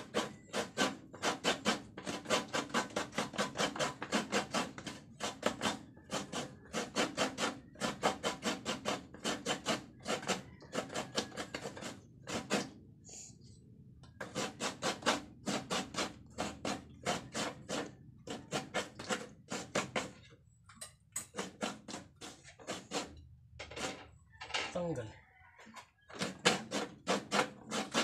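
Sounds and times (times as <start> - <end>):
coconut being grated by hand: 0.0 - 12.8, 14.0 - 20.4, 21.1 - 24.1, 25.7 - 28.0.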